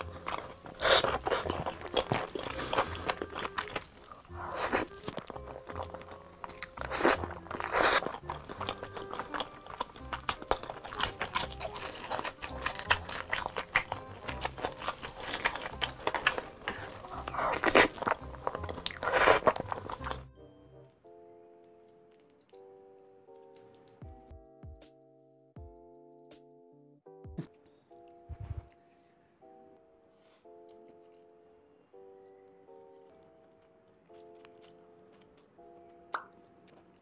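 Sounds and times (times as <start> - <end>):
chewing with wet mouth clicks: 0.0 - 20.3, 33.0 - 37.0
crunchy bites: 0.0 - 20.3, 32.9 - 37.0
faint background music: 0.0 - 37.0
loud slurps of spaghetti: 4.4 - 5.0, 6.6 - 8.2, 16.2 - 20.2.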